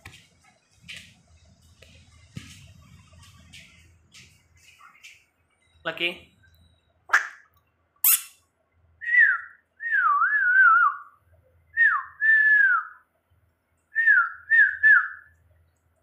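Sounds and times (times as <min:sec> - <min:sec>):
person whistling for a dog: 0:09.0 - 0:11.1, 0:11.8 - 0:13.0.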